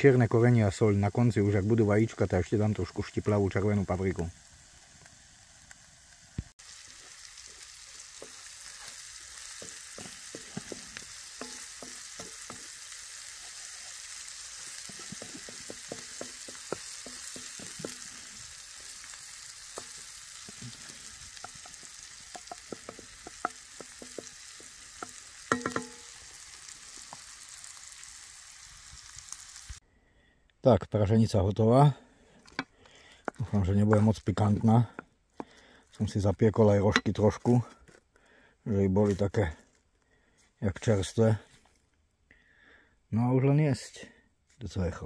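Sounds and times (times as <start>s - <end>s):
food sizzling in frying pan: 1.2s - 29.8s
utensil scraping pan: 8.2s - 18.3s.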